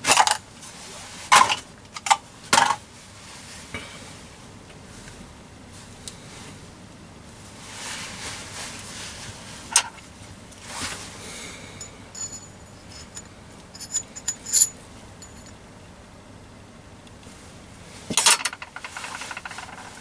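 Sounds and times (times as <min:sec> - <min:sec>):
metallic clinks: 0:11.8 - 0:15.6
tools scraping: 0:11.8 - 0:15.6.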